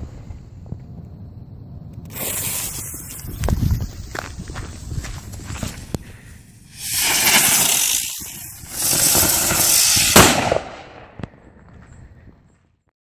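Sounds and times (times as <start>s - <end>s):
ground firework hissing: 2.0s - 10.8s
firework bang: 6.7s - 11.4s.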